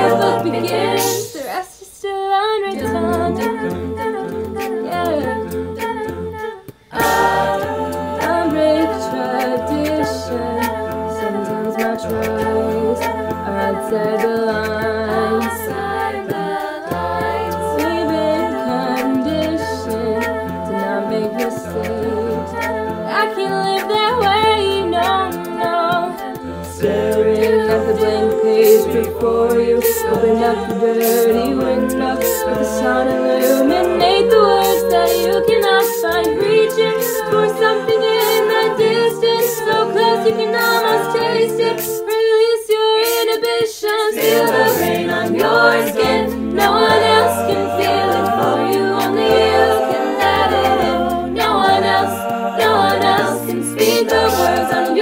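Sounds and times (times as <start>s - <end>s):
a cappella group singing: 0.0s - 55.0s
vocal percussion beat: 0.0s - 55.0s
sung bass line: 16.9s - 37.7s, 44.2s - 55.0s.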